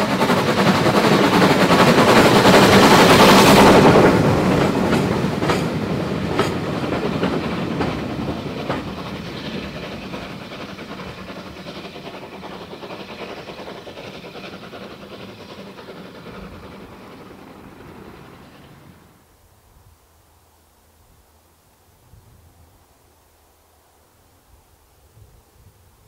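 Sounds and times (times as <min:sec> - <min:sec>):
wheels clicking over rail joints: 0:00.0 - 0:19.0
steam train running: 0:00.0 - 0:19.3.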